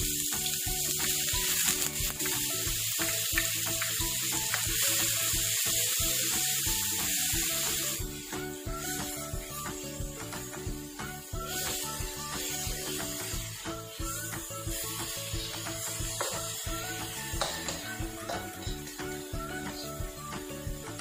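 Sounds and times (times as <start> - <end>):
background music with steady beat: 0.0 - 21.0
onions sizzling in hot oil: 0.0 - 21.0
spatula stirring in wok: 7.2 - 17.9.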